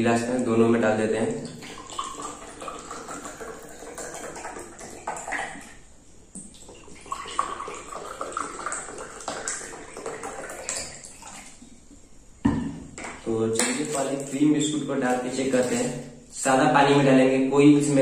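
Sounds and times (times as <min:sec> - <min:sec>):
water pouring into glass: 0:01.4 - 0:05.8, 0:06.4 - 0:11.6.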